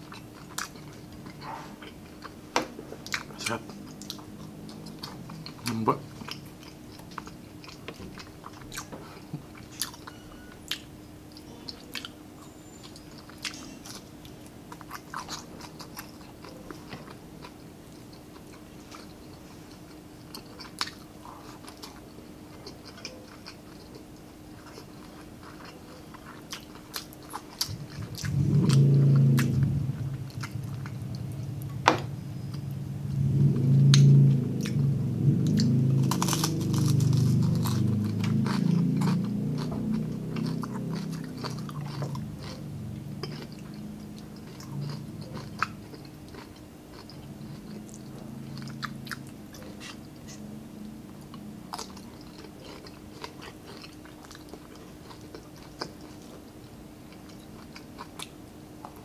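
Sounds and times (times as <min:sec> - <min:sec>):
close-up crunchy chewing: 0:00.0 - 0:32.8, 0:33.8 - 0:59.0
loud low hum: 0:27.3 - 0:53.2.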